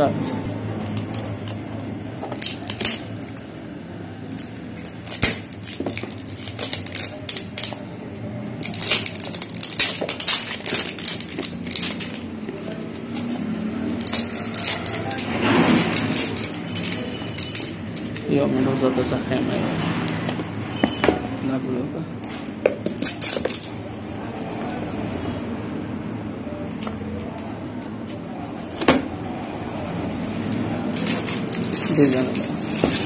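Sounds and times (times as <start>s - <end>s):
plastic wrapping crinkling: 0.8s - 18.4s, 22.4s - 23.8s, 30.4s - 33.0s.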